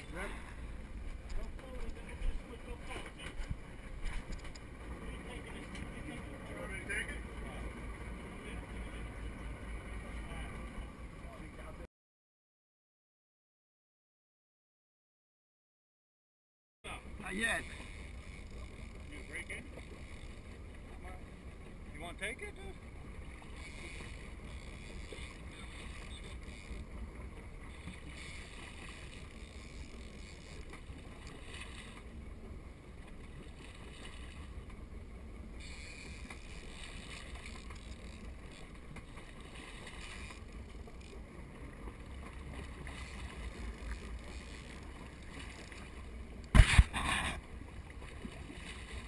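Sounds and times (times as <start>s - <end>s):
water splashing against boat hull: 22.7s - 49.0s.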